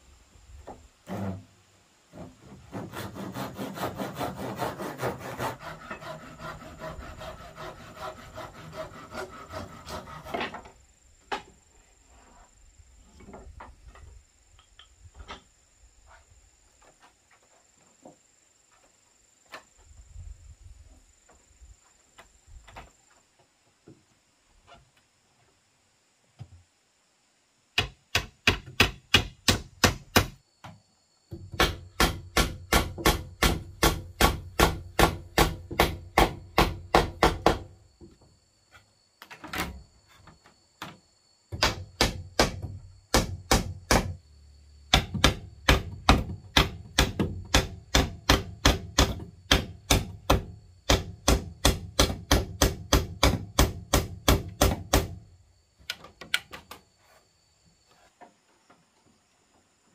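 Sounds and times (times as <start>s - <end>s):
hammer driving nails into wood: 27.8s - 30.4s, 31.5s - 37.7s, 41.6s - 44.2s, 44.9s - 55.2s.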